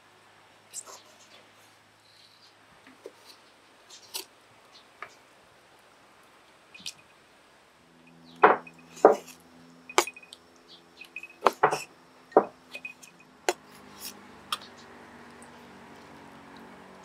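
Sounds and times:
knife chopping on wooden board: 8.4 - 9.3, 11.4 - 12.5.

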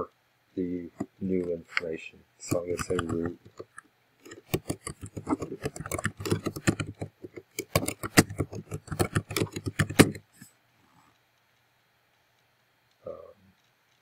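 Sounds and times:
typing on computer keyboard: 2.5 - 10.5.

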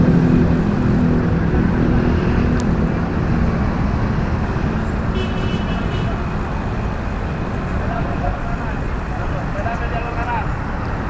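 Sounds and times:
slow traffic engine hum: 0.0 - 11.0.

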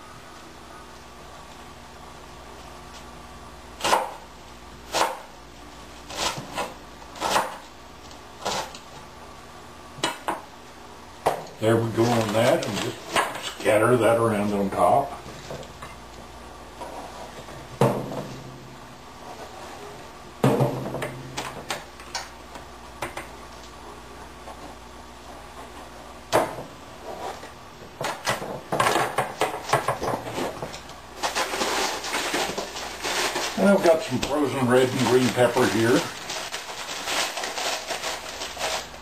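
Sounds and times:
packaging crackling: 31.2 - 39.0.

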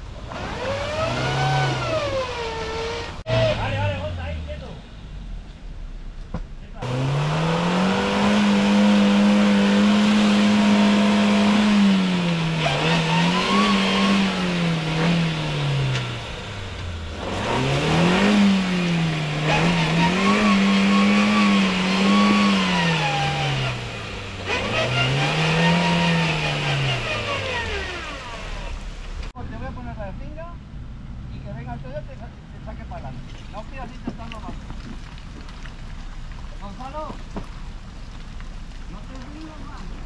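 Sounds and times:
engine revving hard: 0.3 - 4.8, 6.8 - 28.9.

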